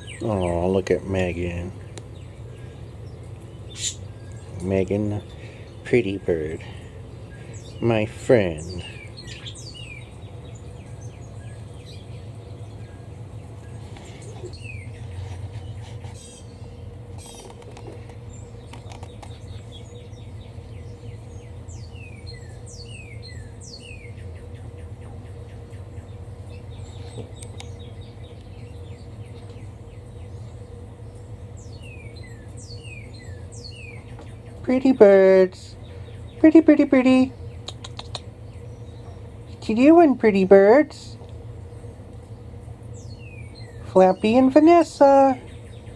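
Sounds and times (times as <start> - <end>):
budgerigars chirping: 0.0 - 6.6, 7.2 - 13.1
steady low hum: 0.0 - 45.9.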